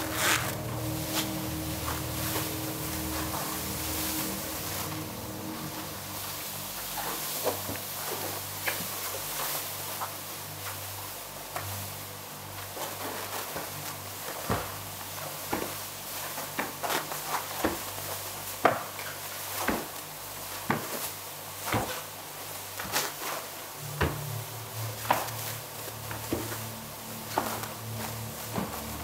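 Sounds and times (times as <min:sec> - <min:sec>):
deep low tone: 0:00.0 - 0:07.2, 0:23.8 - 0:29.0
low steady hum: 0:00.0 - 0:29.0.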